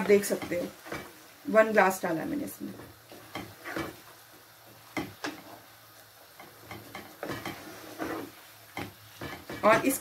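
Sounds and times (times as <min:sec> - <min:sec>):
spatula knocking on pan: 0:04.8 - 0:05.5, 0:08.7 - 0:10.0.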